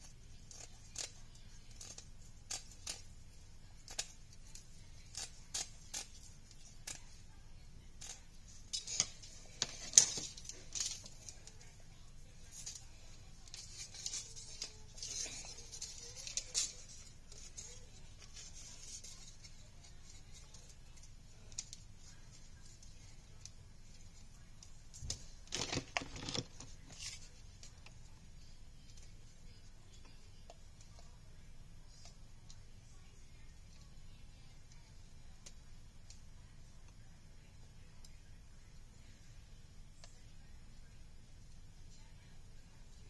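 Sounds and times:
plastic ribbon clicking and rattling: 8.0s - 11.7s, 12.4s - 24.0s, 24.6s - 28.0s.

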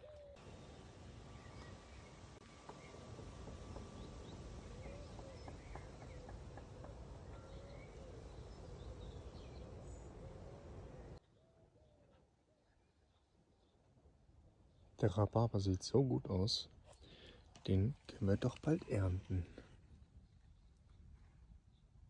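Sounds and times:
birds chirping: 0.0s - 12.1s
low wavering bird calls: 0.0s - 12.8s.

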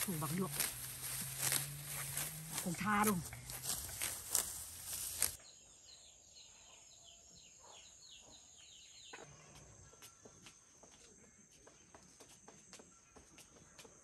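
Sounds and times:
high insect whine: 0.0s - 5.4s
bird chirping: 0.0s - 12.2s.

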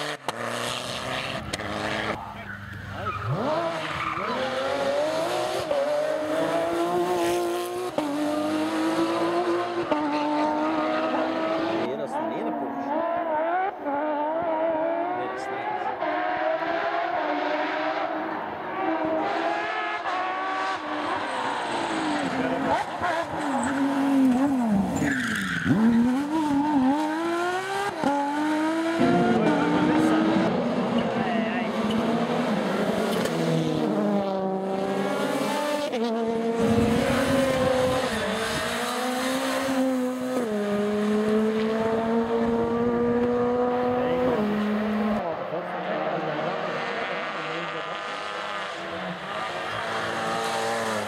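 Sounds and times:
rally car engine at high revs: 0.0s - 51.0s
tyre squeal: 23.3s - 26.5s.

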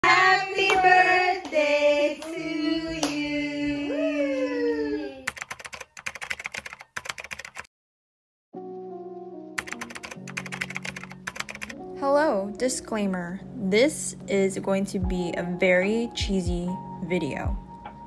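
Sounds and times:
voices singing held notes: 0.0s - 4.0s
soft music: 8.6s - 18.0s
sharp irregular clicks: 9.6s - 11.8s.

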